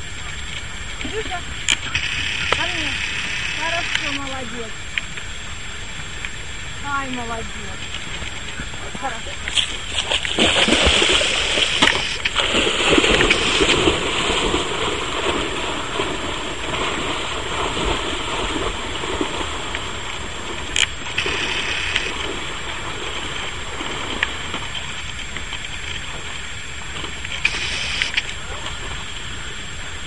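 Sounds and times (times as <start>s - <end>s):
dog splashing through water: 9.0s - 25.1s.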